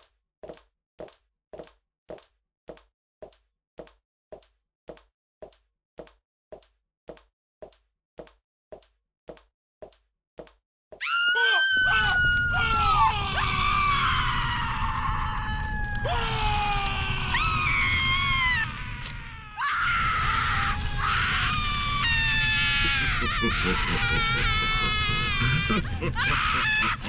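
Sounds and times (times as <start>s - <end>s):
many voices screaming and wailing: 11.0s - 27.0s
low rumble: 12.0s - 26.2s.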